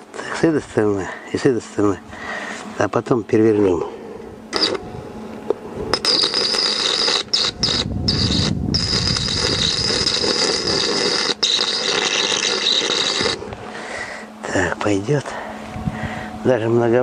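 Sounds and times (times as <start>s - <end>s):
arc welding crackling sizzle: 4.5s - 4.8s, 5.9s - 15.2s.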